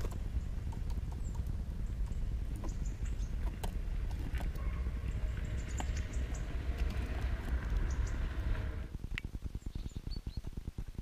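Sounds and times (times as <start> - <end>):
steady low rumble: 0.0 - 11.0.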